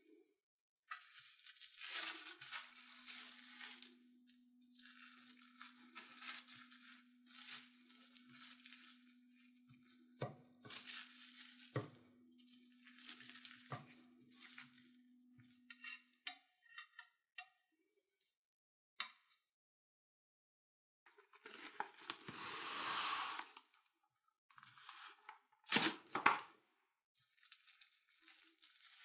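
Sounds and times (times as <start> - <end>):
crinkling and rustling: 0.9 - 15.6, 21.1 - 23.8, 27.2 - 29.0.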